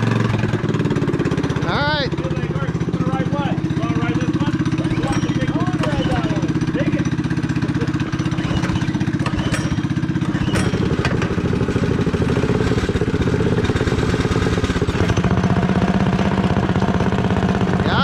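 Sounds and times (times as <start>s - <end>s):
small engines idling: 0.0s - 18.0s.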